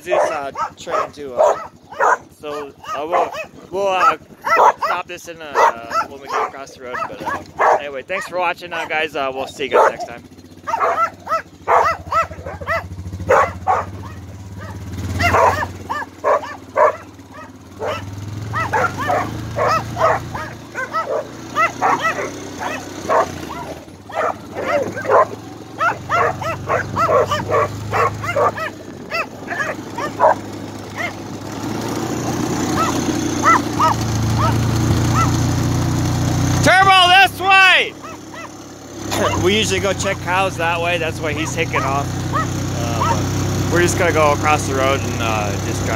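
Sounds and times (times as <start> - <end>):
dog barking and yipping: 0.0 - 35.5, 36.9 - 40.3, 41.3 - 43.4
four-wheeler engine running low: 0.0 - 45.9.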